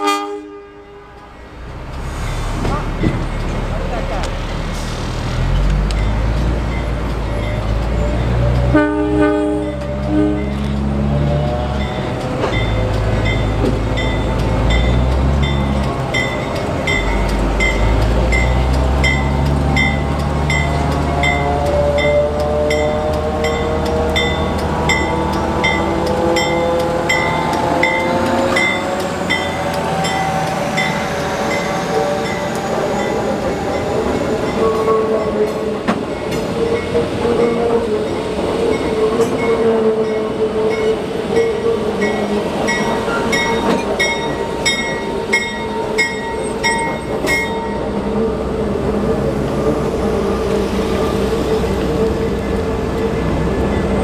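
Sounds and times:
locomotive horn blast: 0.0 - 1.5, 8.0 - 10.8
diesel train rumble: 0.0 - 54.0
bell ringing: 38.7 - 48.0.

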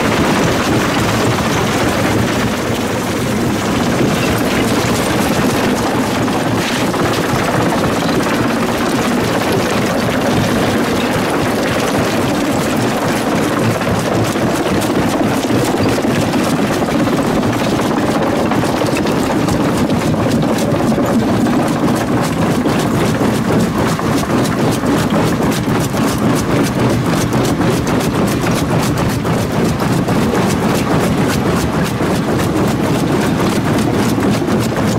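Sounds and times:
heavy machine drone: 0.0 - 14.1.

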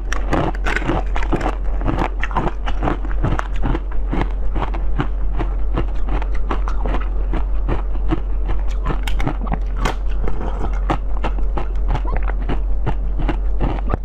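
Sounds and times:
steady low hum: 0.0 - 14.0
wet eating mouth sounds: 0.0 - 14.0.

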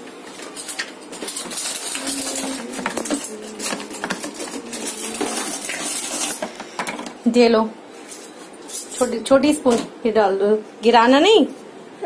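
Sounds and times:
cutlery clinking in metal rack: 0.3 - 7.0, 8.1 - 9.9.

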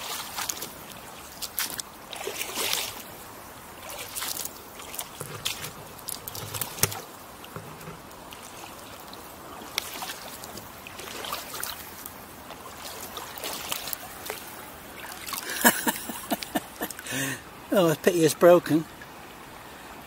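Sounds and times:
river water sloshing and trickling: 0.0 - 20.0.

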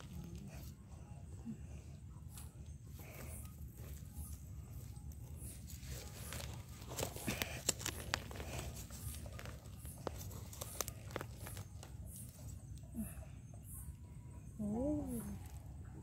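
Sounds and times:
knife scraping soil: 3.3 - 12.5.

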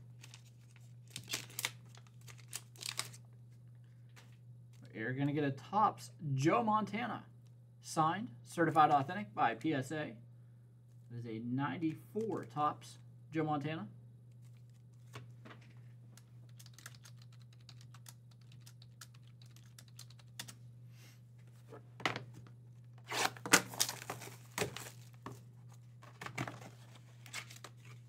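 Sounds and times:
steady low hum: 0.0 - 28.0
packaging crinkling and tearing: 0.2 - 3.3, 23.0 - 25.2.

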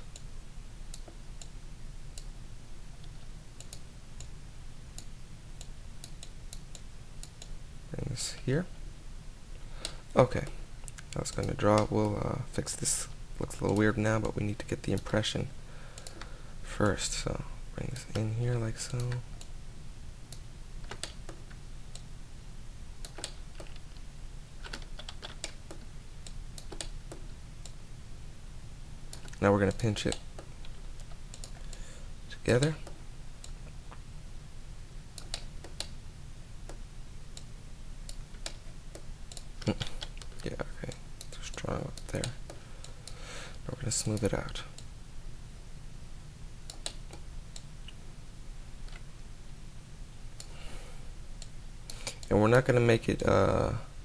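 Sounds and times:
low steady hum: 0.0 - 54.0
computer mouse clicks: 3.0 - 4.3, 16.0 - 17.0, 20.3 - 22.1, 23.0 - 24.0, 24.6 - 27.8, 29.1 - 31.8, 35.2 - 36.0, 38.1 - 43.2, 46.7 - 48.0, 51.4 - 52.4
keyboard clicks: 20.3 - 22.1, 23.0 - 23.9, 24.6 - 27.8.

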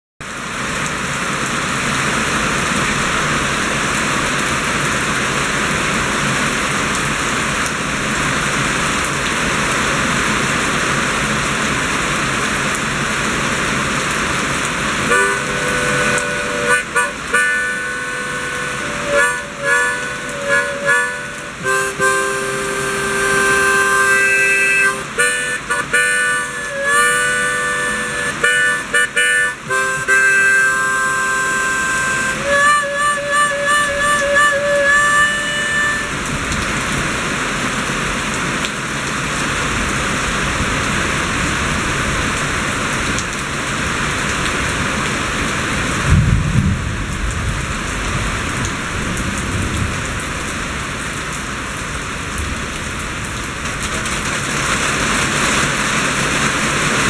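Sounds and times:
steady rain: 0.2 - 57.0
melody instrument playing: 15.1 - 36.2.

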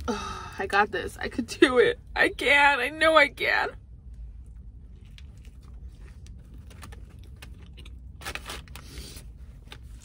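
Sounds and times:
low hum in car cabin: 0.0 - 10.0
close-mic chewing: 4.4 - 10.0.

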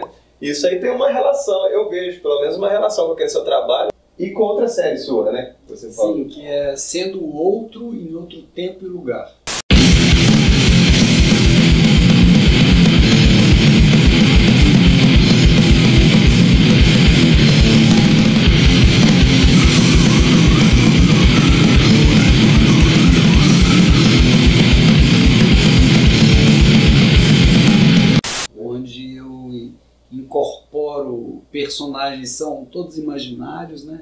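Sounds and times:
heavy rock music with guitar: 9.5 - 28.5.

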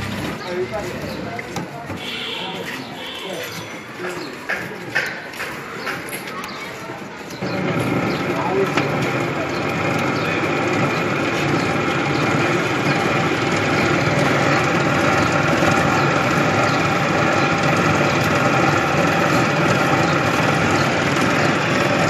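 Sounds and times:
cotton candy machine humming: 5.3 - 22.0.

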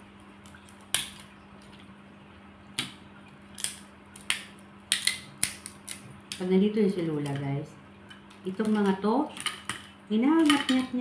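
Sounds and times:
crab shell cracking: 0.2 - 1.9, 2.8 - 6.5.

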